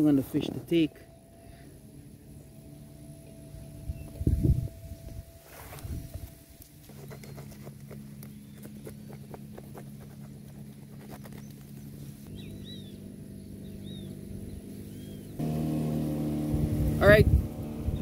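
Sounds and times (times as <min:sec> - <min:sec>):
bird chirps: 0:06.9 - 0:09.6, 0:10.2 - 0:15.4.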